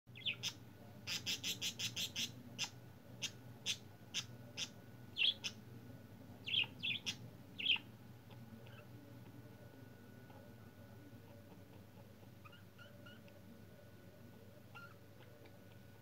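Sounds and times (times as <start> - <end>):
budgerigars chirping: 0.1 - 5.6, 6.4 - 7.9.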